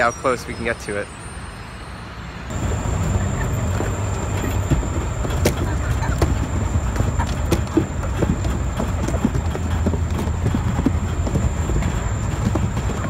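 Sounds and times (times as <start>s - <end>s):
truck engine rumbling: 2.4s - 13.0s.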